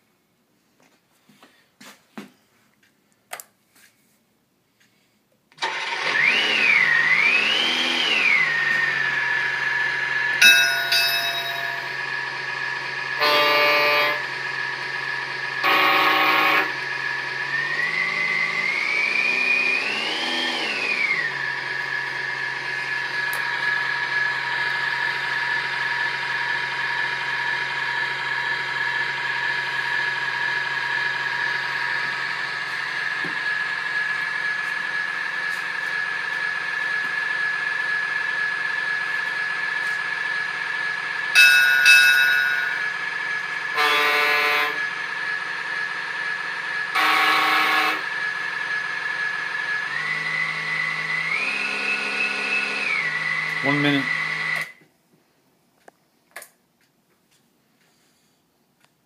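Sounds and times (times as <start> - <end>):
simulated diesel engine revving: 5.6 - 10.4, 11.6 - 41.4, 42.2 - 54.8
horn-like blasts: 13.2 - 14.4, 15.6 - 17.0, 43.7 - 44.9, 46.9 - 48.2.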